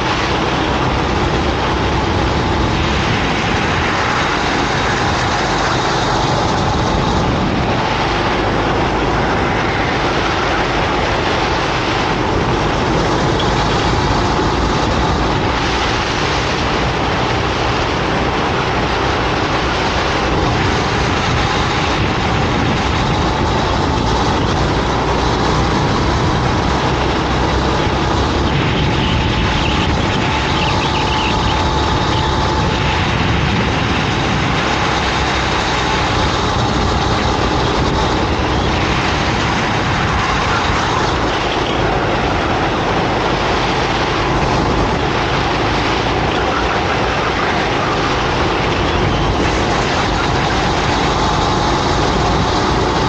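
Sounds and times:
go-kart engine running hard: 0:00.0 - 0:53.0
steady rush of noise: 0:00.0 - 0:53.0.

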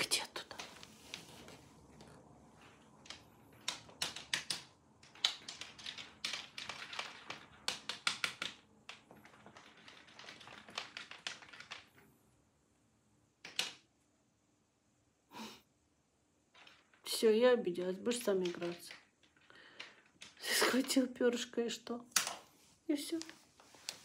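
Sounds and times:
cat claws tapping wooden floor: 0:00.0 - 0:12.1, 0:16.5 - 0:21.2.

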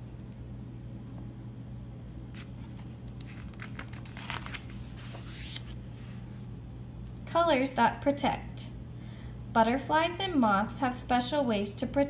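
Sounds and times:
steady low hum: 0:00.0 - 0:12.0
paper pages turning: 0:02.4 - 0:06.4.

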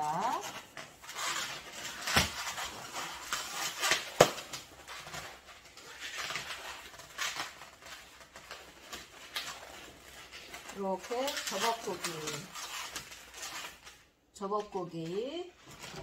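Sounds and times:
balloons squeaking and rubbing: 0:00.0 - 0:16.0.

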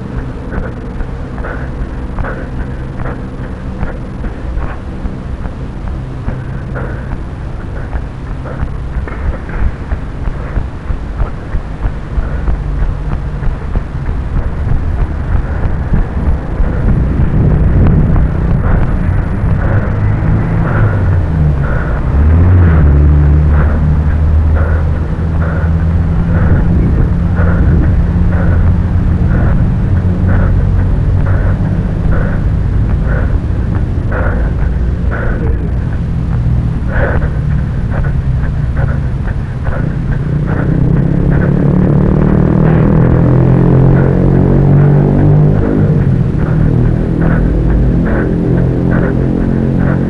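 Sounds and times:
footstep knocks: 0:00.0 - 0:50.0
wind rumble on microphone: 0:00.0 - 0:50.0.

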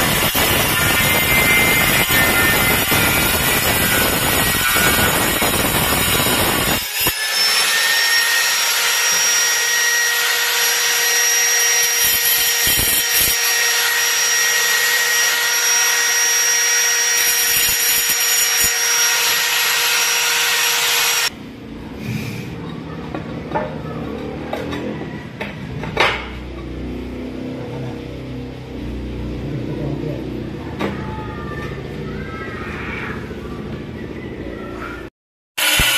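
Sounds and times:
angle grinder cutting tile: 0:00.0 - 0:21.3, 0:35.6 - 0:35.9.

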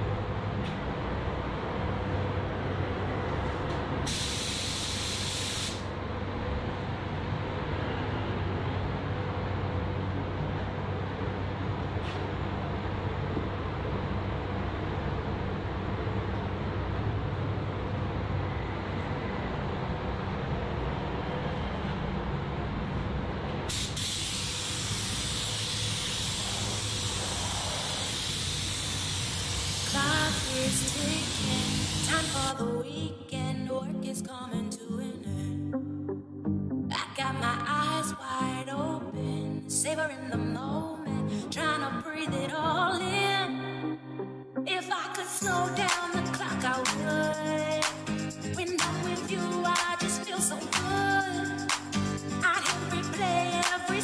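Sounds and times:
steady low hum: 0:00.0 - 0:33.8
paint spray gun hissing: 0:04.1 - 0:05.8, 0:23.7 - 0:32.5
rushing air noise: 0:17.5 - 0:32.4.

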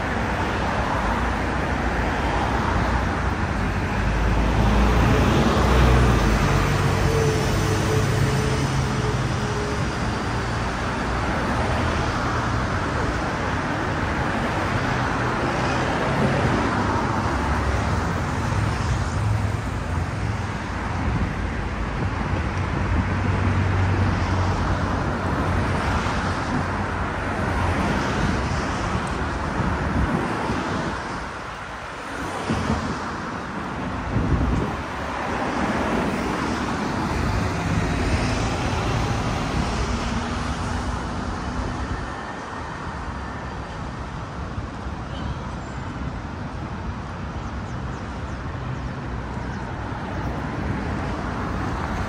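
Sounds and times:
traffic passing: 0:00.0 - 0:52.0.

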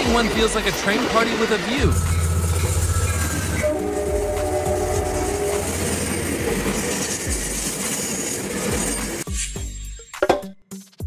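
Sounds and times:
train wheels on rails: 0:00.0 - 0:09.4
held tones: 0:01.8 - 0:07.6.

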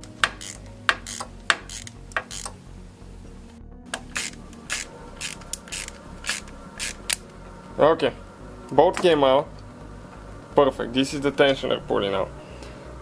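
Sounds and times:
hand ratchet clicking: 0:00.0 - 0:02.6, 0:03.9 - 0:07.2.

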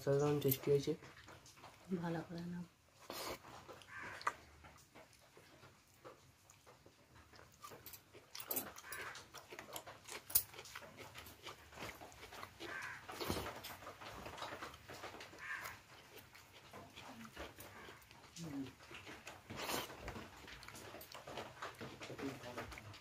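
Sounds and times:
wet chewing: 0:00.0 - 0:23.0.

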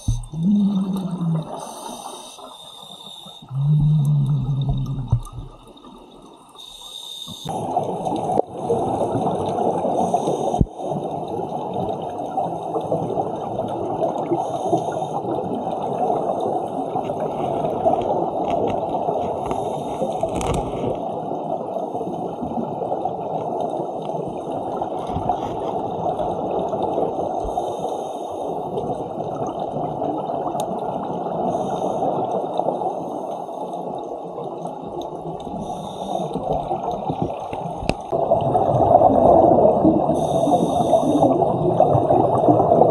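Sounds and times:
muffled underwater rush: 0:00.0 - 0:20.0, 0:21.0 - 0:42.9
regulator bubbles gurgling: 0:00.0 - 0:21.8, 0:28.6 - 0:42.9.

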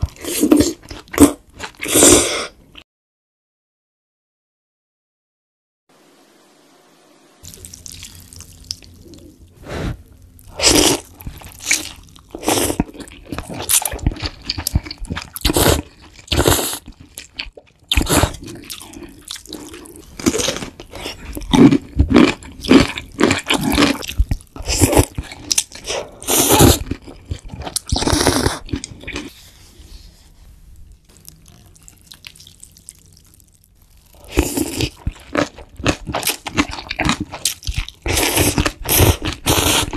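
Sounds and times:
chewing: 0:31.1 - 0:39.9.

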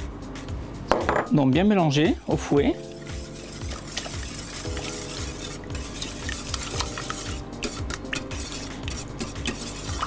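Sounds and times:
whisk clicking against metal pan: 0:02.9 - 0:10.0.

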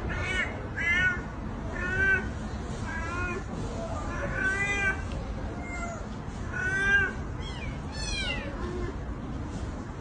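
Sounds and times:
cat meowing: 0:00.0 - 0:02.3, 0:04.1 - 0:08.9.

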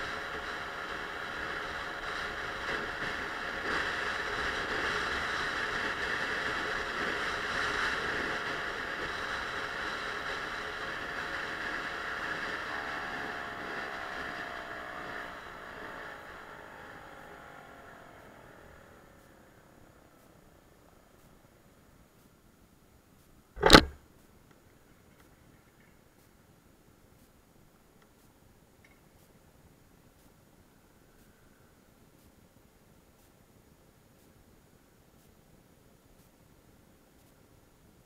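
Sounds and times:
scooter engine: 0:00.0 - 0:20.4, 0:23.6 - 0:24.0
wind and road noise: 0:00.0 - 0:22.7, 0:23.6 - 0:24.0.

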